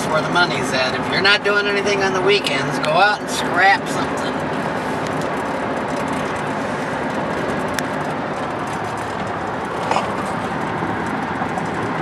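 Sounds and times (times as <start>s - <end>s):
road and engine noise in cabin: 0.0s - 12.0s.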